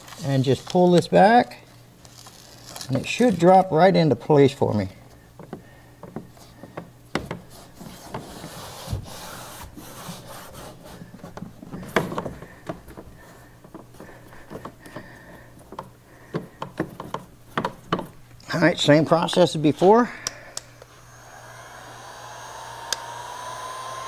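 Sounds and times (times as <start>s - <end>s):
rubbing and scraping: 7.3s - 14.8s.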